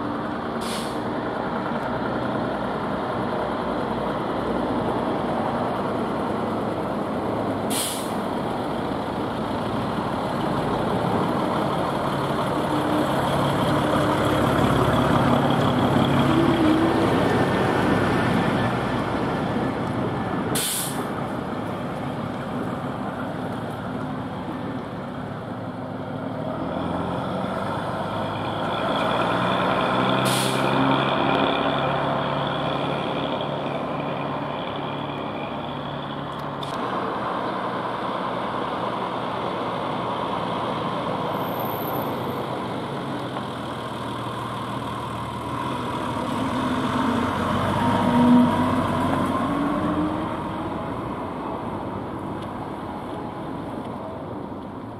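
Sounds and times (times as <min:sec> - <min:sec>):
bus engines running: 0:00.0 - 0:54.9
air brake hiss: 0:00.6 - 0:01.1, 0:07.7 - 0:08.2, 0:20.5 - 0:21.1, 0:30.2 - 0:30.8.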